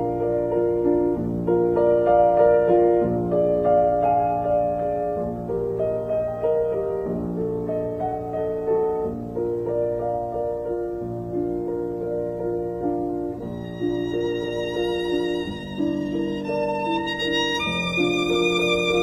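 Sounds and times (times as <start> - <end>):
piano: 0.0 - 19.0
slow violin melody: 13.4 - 19.0.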